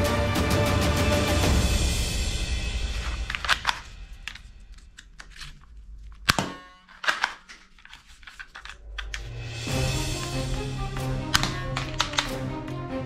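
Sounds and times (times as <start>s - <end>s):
plastic toy guns clacking: 3.0s - 9.3s, 10.1s - 12.4s.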